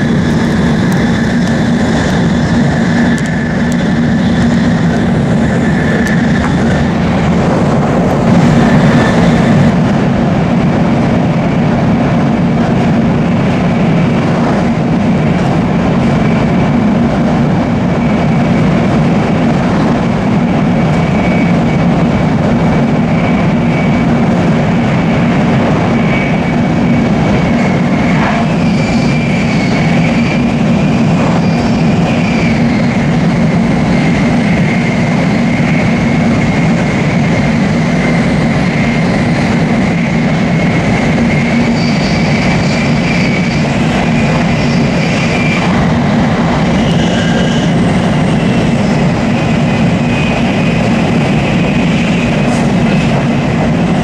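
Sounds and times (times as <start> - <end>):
train running noise: 0.0 - 54.0.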